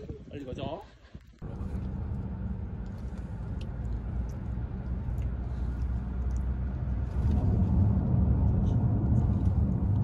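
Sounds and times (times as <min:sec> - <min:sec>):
car rumble inside cabin: 0:01.4 - 0:10.0.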